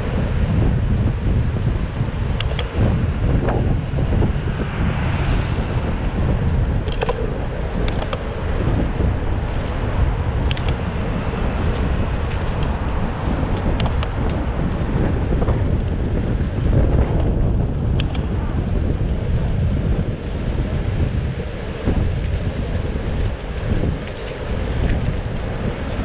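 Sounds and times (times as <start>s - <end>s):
road traffic: 0.0s - 26.0s
wind buffeting microphone: 0.0s - 26.0s
sharp ticks: 2.4s - 2.8s, 6.8s - 8.4s, 10.4s - 10.8s, 13.6s - 14.4s, 17.9s - 18.3s.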